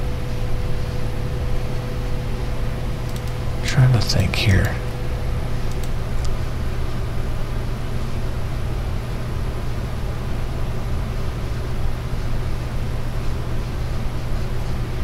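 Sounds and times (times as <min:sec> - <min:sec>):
low hum: 0:00.0 - 0:07.4.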